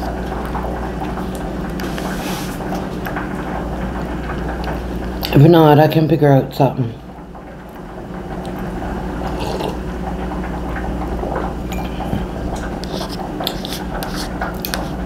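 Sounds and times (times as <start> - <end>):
steady low hum: 0.0 - 15.0.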